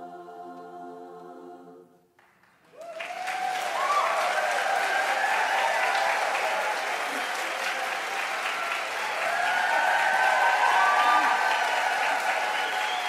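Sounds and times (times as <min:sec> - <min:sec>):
women's chorus singing chord: 0:00.0 - 0:02.0
audience applause: 0:02.3 - 0:13.0
audience whooping cheers: 0:02.7 - 0:13.0.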